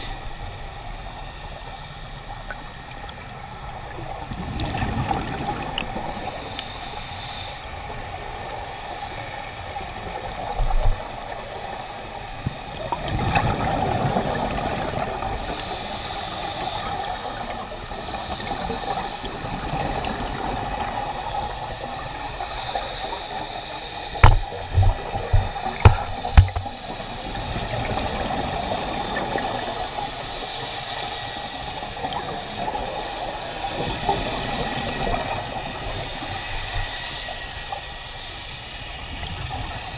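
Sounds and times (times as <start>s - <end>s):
regulator breathing and bubbles: 2.4s - 38.0s
sharp knocks: 24.2s - 26.7s.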